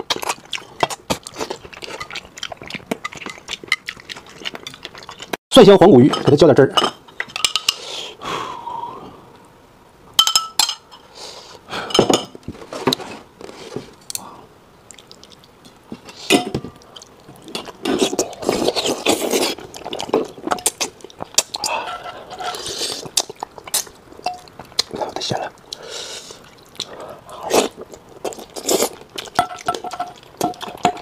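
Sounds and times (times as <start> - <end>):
sucking and chewing: 0.0 - 5.4, 13.4 - 31.0
spoon clinking against glass bowl: 6.1 - 7.8, 10.2 - 11.0, 24.2 - 24.5, 29.4 - 31.0.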